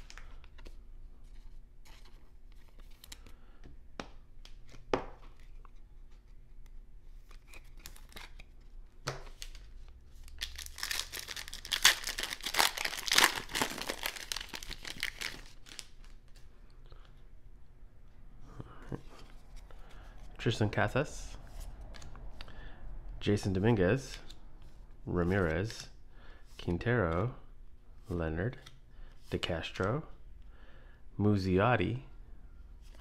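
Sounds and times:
cards being handled: 4.0 - 16.5
foil wrapper tearing and crinkling: 10.3 - 16.2.

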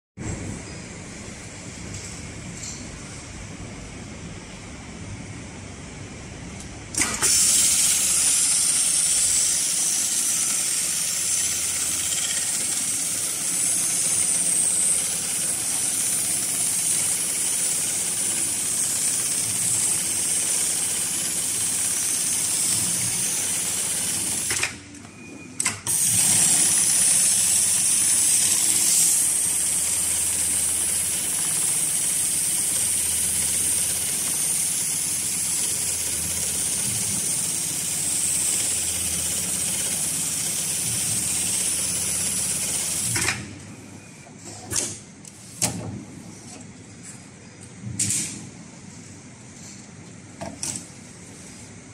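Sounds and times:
sewing machine running: 7.0 - 24.8, 25.9 - 43.3.

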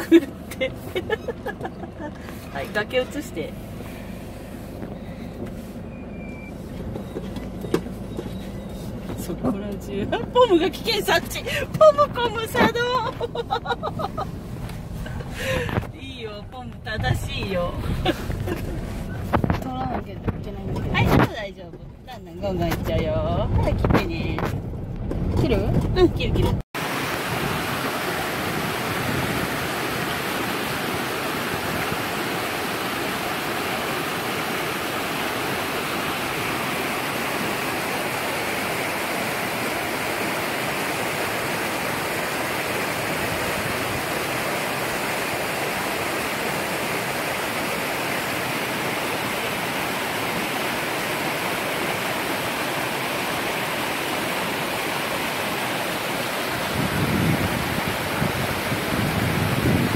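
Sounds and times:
stream rushing over rocks: 26.8 - 59.9.

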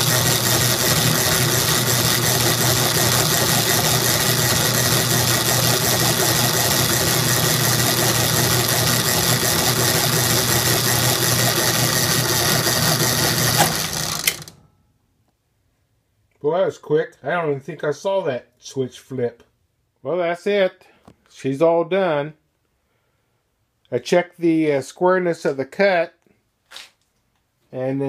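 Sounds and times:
electric motor humming: 0.0 - 14.6
power hacksaw sawing metal: 0.0 - 14.6.

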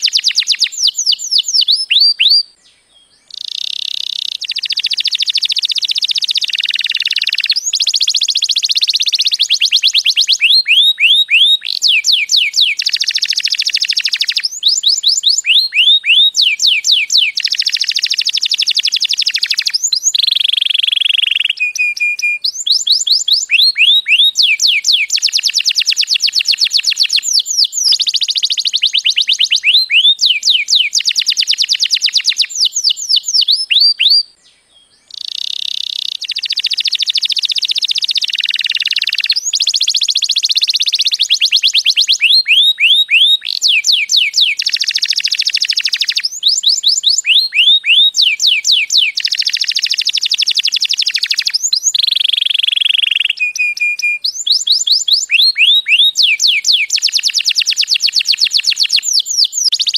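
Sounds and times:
canary singing: 0.0 - 59.9.

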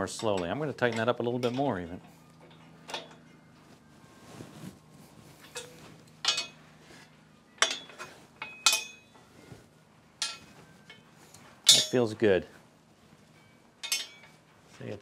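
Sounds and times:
metallic clinks and clanks: 5.4 - 6.6, 7.6 - 9.2, 10.2 - 12.1, 13.3 - 14.5
metallic ring: 5.4 - 6.6, 7.6 - 9.2, 10.2 - 12.1, 13.3 - 14.4.

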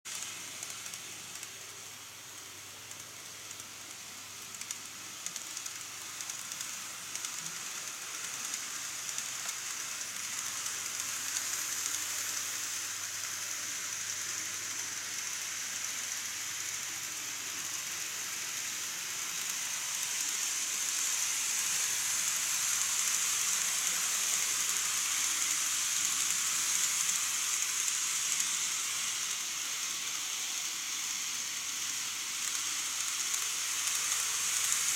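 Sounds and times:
model train wheels hissing on rails: 0.1 - 34.9.

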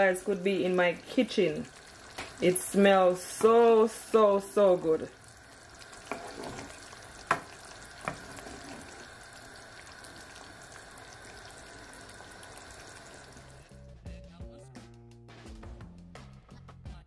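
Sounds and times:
chicken sizzling in a pan: 0.0 - 13.8
wooden spoon knocking against pan: 7.2 - 8.2.

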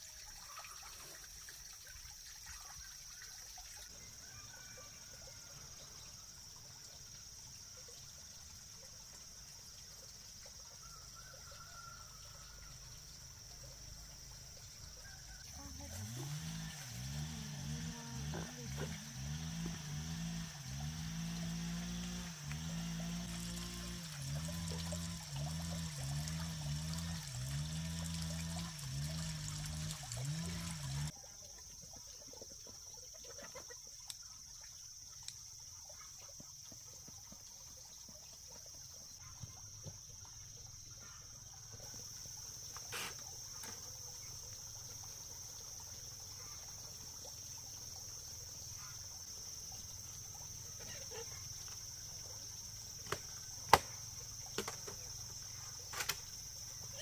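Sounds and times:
high insect drone: 4.2 - 31.1, 36.0 - 57.0
shovel scraping soil: 42.9 - 43.2.

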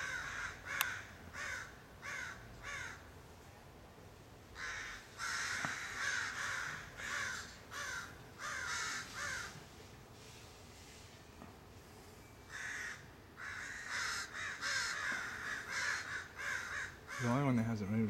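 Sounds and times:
crows cawing: 0.0 - 3.1, 4.6 - 9.6, 12.5 - 17.5.

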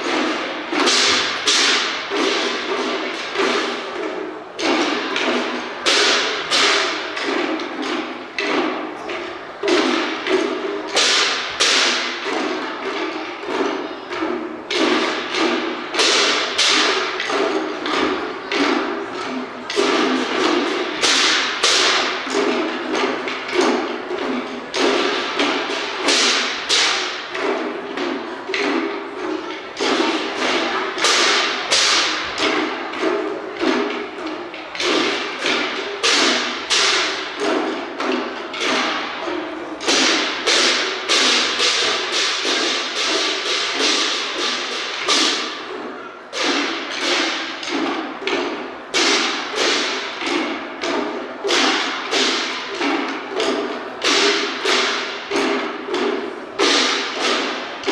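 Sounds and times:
hand cymbals crashing: 0.0 - 57.9
waist drums beaten in rhythm: 0.0 - 57.9.

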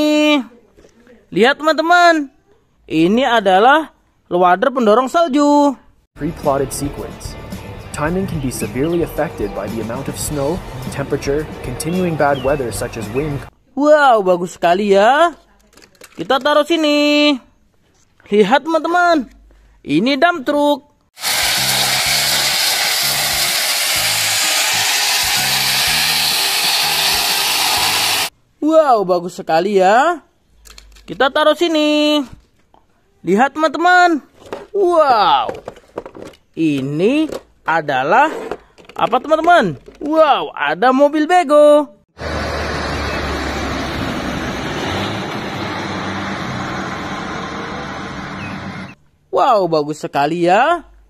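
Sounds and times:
gravel pouring from truck bed: 21.2 - 28.3.

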